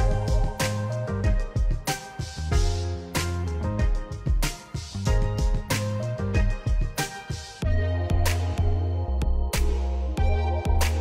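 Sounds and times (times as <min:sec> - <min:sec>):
music with drum beat and bass: 0:00.0 - 0:11.0.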